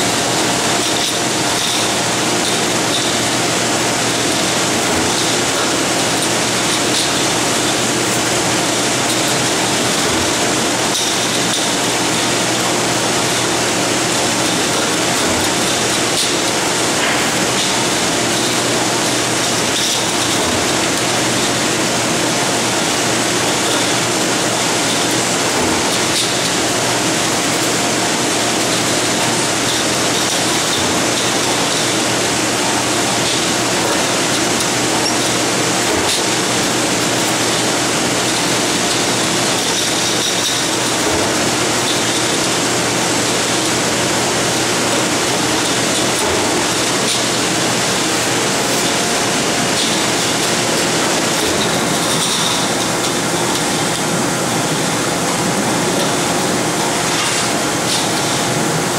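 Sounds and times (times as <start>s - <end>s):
factory machinery running: 0.0s - 58.9s.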